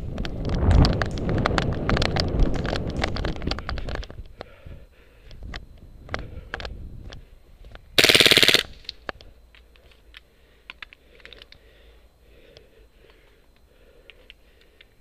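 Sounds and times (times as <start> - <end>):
airsoft rifle burst: 8.0 - 9.0
faint clicks and rustling: 8.8 - 11.7.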